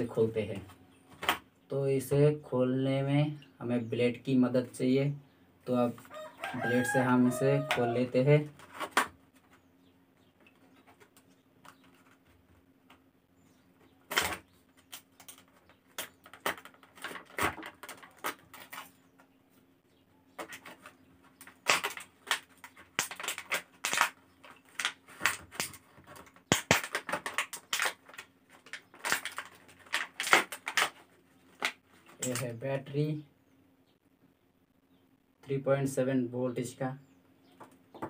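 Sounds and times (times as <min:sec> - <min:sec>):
plastic packaging crackling: 0:14.1 - 0:19.0, 0:20.4 - 0:32.5.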